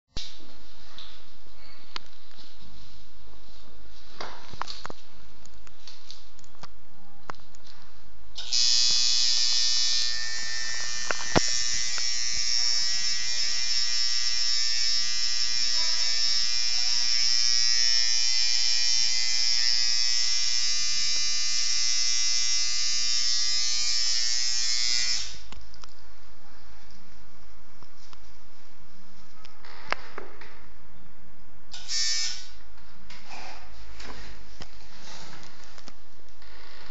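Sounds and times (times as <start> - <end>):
tattoo machine buzzing: 8.4 - 25.5, 31.7 - 32.6.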